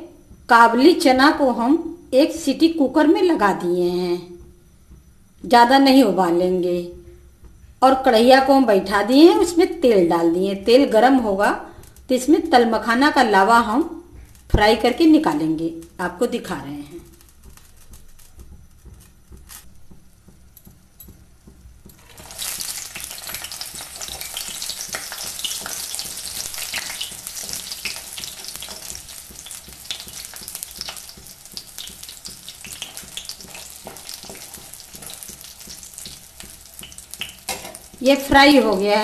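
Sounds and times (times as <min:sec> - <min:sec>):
seeds sizzling in hot oil: 0:14.0 - 0:18.6, 0:21.9 - 0:39.0.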